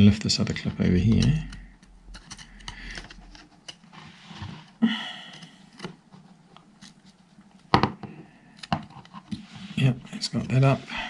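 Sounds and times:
metal pick scraping plastic: 0.8 - 7.2.

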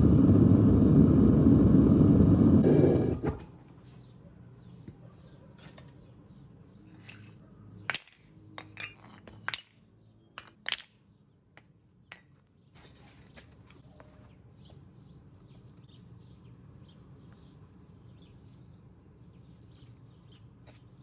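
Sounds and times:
metal ingots clanking on concrete: 7.8 - 11.1.

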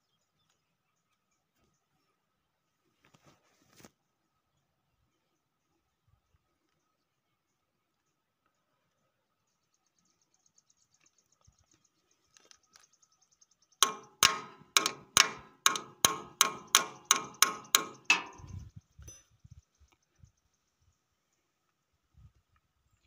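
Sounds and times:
spanner tapping metal: 13.8 - 19.2.

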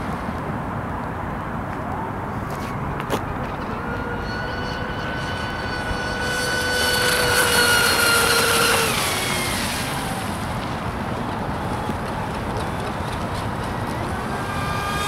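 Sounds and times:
model boat motor whine: 3.0 - 15.0.

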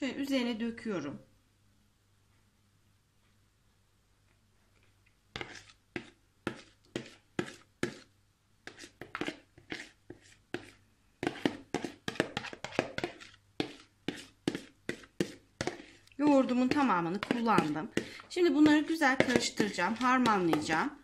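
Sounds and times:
spoon scraping and knocking bowl: 5.3 - 21.0.

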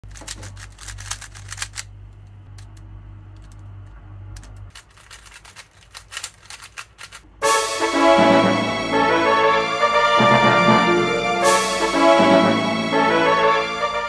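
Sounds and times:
puzzle cube clicking: 0.0 - 3.8, 4.4 - 7.2.

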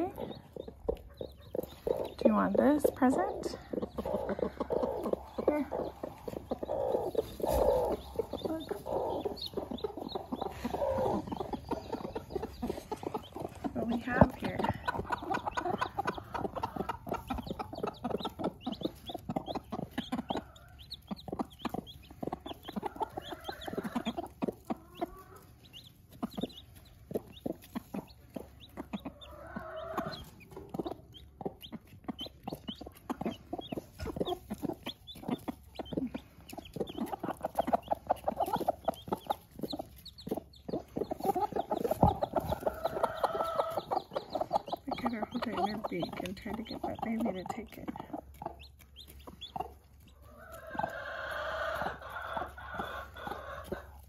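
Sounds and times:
beaks pecking at food: 0.0 - 54.0
chicks peeping: 0.0 - 54.0
hens clucking: 0.0 - 54.0.

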